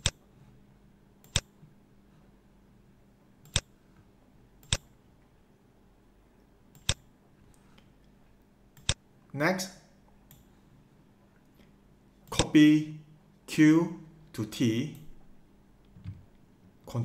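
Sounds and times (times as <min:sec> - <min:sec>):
computer mouse clicks: 0:00.0 - 0:00.2, 0:01.2 - 0:01.5, 0:03.4 - 0:03.7, 0:04.6 - 0:04.9, 0:06.7 - 0:07.1, 0:08.8 - 0:09.0, 0:10.3 - 0:10.5
faint steady hum: 0:00.0 - 0:17.0.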